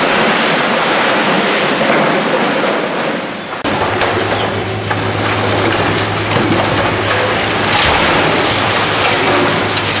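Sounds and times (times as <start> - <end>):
falling concrete rubble: 0.0 - 10.0
machine engine hum: 3.6 - 10.0.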